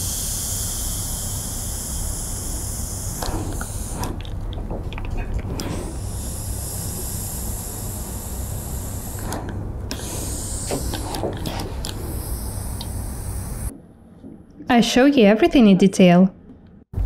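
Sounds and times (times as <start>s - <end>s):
steam iron hissing: 0.0s - 4.3s, 5.6s - 13.7s.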